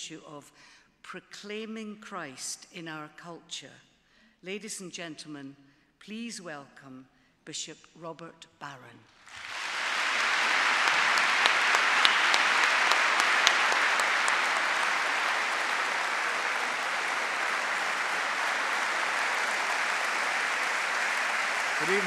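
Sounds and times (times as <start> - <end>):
large audience applauding: 9.2 - 22.0.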